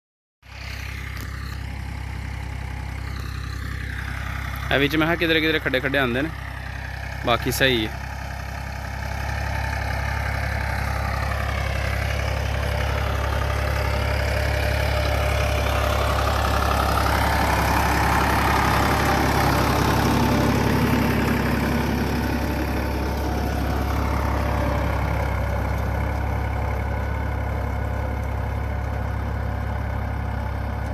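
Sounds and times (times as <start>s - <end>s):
tractor diesel engine under load: 0.4s - 30.9s.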